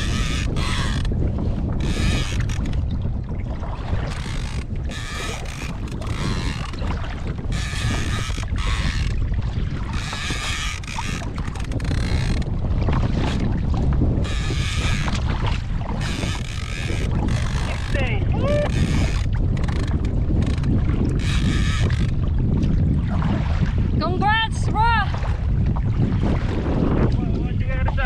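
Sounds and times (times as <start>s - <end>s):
fishing reel whirring: 0.0s - 2.9s, 4.0s - 6.8s, 7.4s - 9.3s, 9.9s - 13.5s, 14.2s - 15.3s, 15.9s - 22.2s
wind buffeting microphone: 0.0s - 28.0s.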